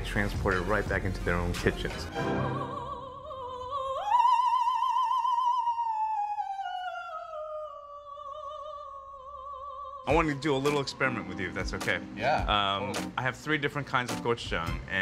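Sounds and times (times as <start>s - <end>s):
operatic voice singing: 10.0s - 11.5s.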